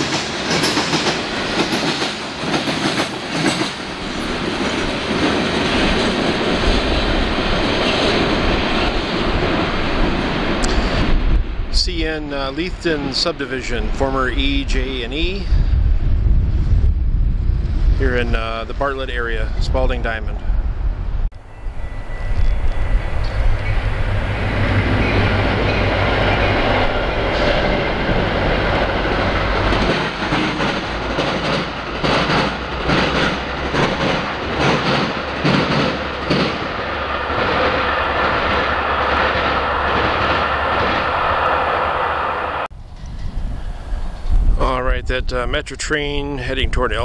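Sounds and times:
train wheel clacks: 0.0s - 8.3s, 24.8s - 41.7s
train passing: 0.0s - 46.9s.

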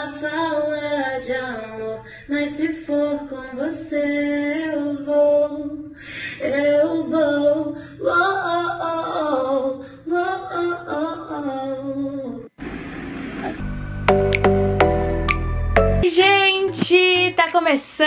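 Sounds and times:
woman singing: 0.0s - 12.5s, 16.0s - 18.0s.

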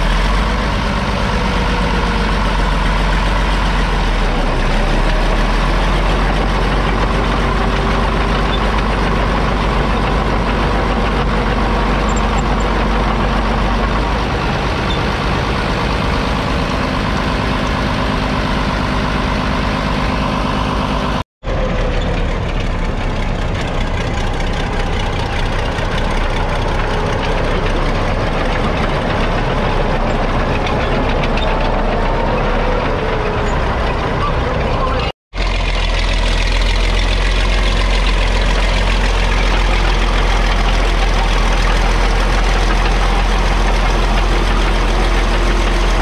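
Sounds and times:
diesel engine running: 0.0s - 46.0s.

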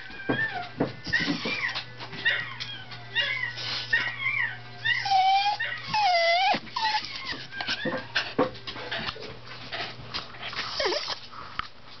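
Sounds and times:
dog whimpering: 0.0s - 8.4s, 10.7s - 11.2s.

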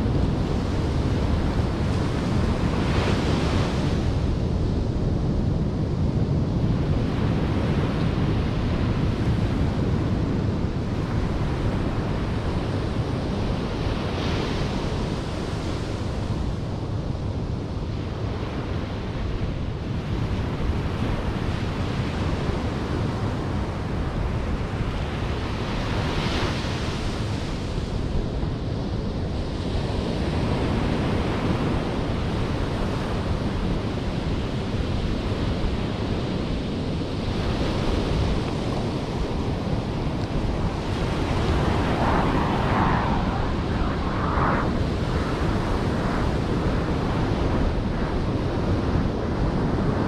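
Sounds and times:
wind buffeting microphone: 0.0s - 50.0s
ocean surf breaking on beach: 29.5s - 50.0s.

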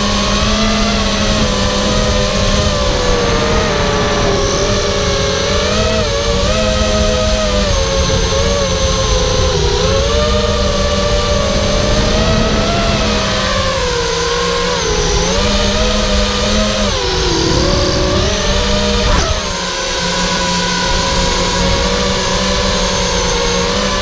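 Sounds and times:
drone motors whining: 0.0s - 24.0s
rush of air: 16.8s - 19.6s.

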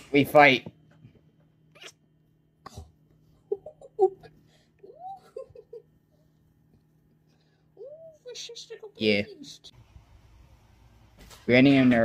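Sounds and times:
kitten mewing and chirping: 1.7s - 2.0s.

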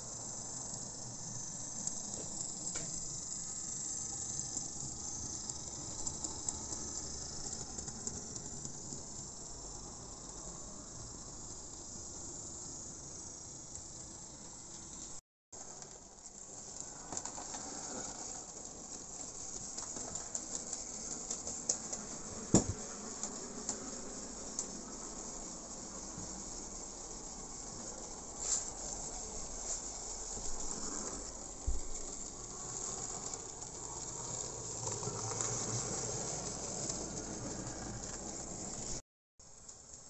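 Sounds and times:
wheels clicking over rail joints: 4.5s - 9.2s, 28.4s - 39.0s.

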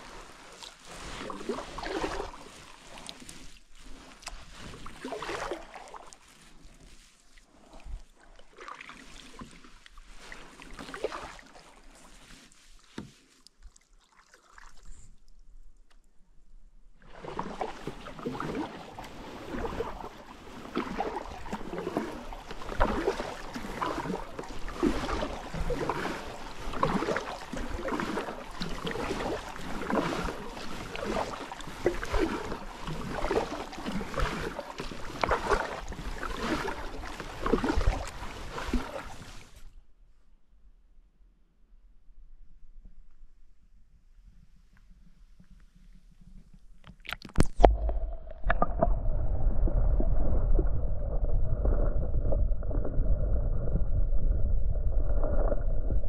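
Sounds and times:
kayak paddle strokes in water: 0.0s - 15.4s, 16.9s - 39.8s
water dripping from paddle: 13.4s - 15.5s, 17.6s - 39.1s.

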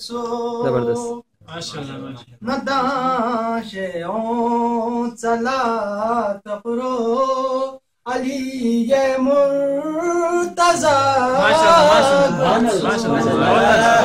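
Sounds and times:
person singing devotional chant: 0.0s - 14.0s.

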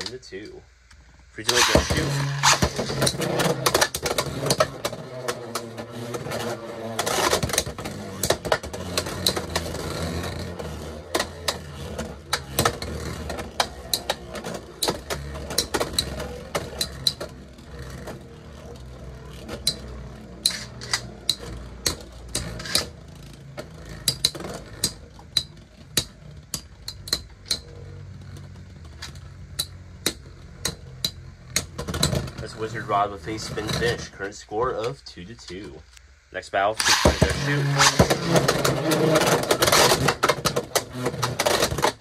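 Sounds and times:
spinning tops whirring: 1.4s - 34.8s, 36.6s - 42.0s
spinning tops clacking: 1.5s - 4.7s, 36.8s - 40.7s.

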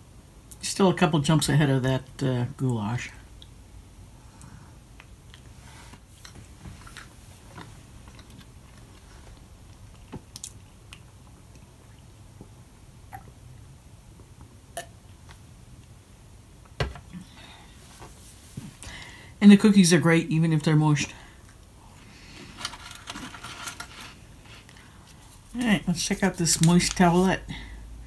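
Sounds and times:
person chewing food: 6.2s - 13.3s.

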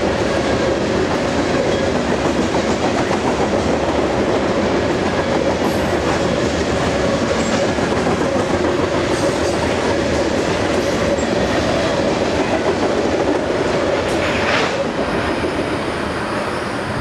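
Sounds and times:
freight train wheels rumbling on rails: 0.0s - 17.0s.

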